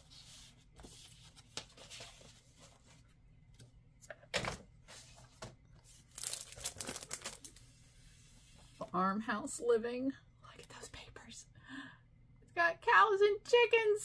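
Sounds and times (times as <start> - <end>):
plastic wrapping crinkling: 6.0 - 7.6.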